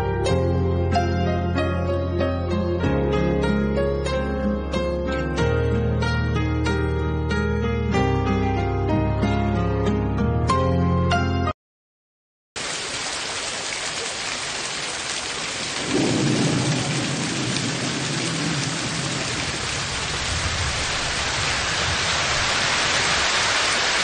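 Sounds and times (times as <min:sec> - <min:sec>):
background music: 0:00.0 - 0:11.5
heavy rain: 0:12.6 - 0:24.0
low roll of thunder: 0:15.8 - 0:22.9.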